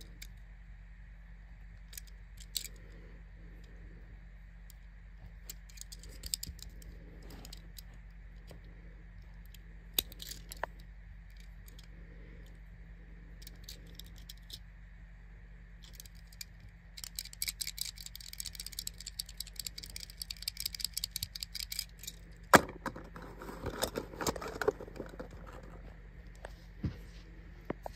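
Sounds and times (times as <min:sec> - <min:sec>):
toy car clicking and rattling: 0:01.8 - 0:02.9, 0:05.4 - 0:07.9, 0:09.3 - 0:11.9, 0:13.4 - 0:14.6, 0:15.8 - 0:26.4
cardboard box rustling: 0:22.5 - 0:25.9.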